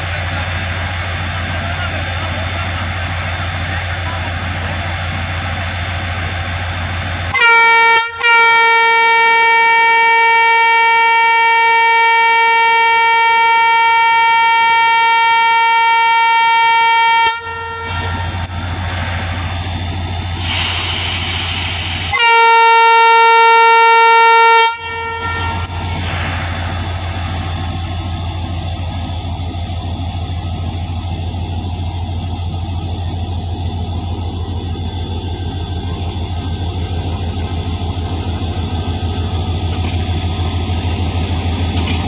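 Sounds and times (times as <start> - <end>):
diesel engine humming: 0.0 - 42.0
air hiss: 1.3 - 3.2, 20.4 - 22.2
locomotive air horn blasts: 7.3 - 18.5, 20.4 - 26.3.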